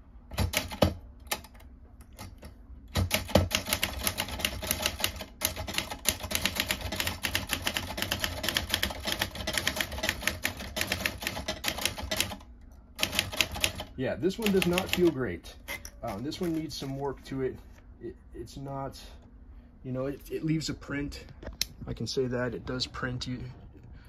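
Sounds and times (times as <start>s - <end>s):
manual typewriter typing: 0.3s - 15.2s, 16.0s - 17.0s.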